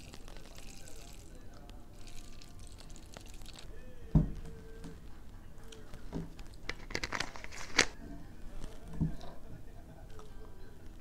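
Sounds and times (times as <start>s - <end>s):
liquid pouring into plastic bottle: 0.0s - 5.0s
plastic bottle crackling: 0.0s - 5.1s, 5.7s - 9.4s.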